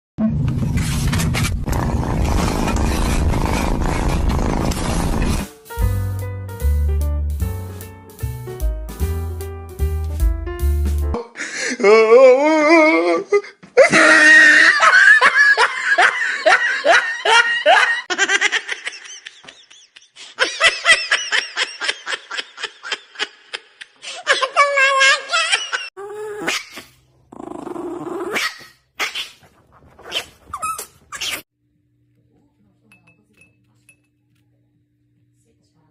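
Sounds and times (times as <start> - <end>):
person laughing: 11.2 - 25.9.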